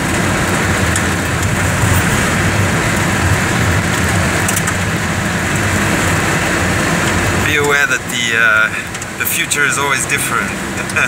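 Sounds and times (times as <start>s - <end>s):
low hum: 0.8s - 5.8s.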